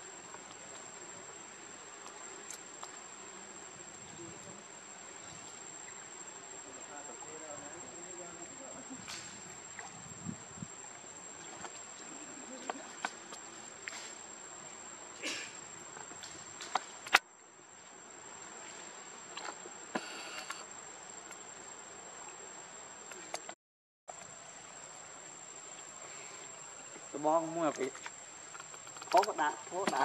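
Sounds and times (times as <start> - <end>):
insects droning: 0.0 - 30.0
small clicks and ticks: 27.7 - 29.4.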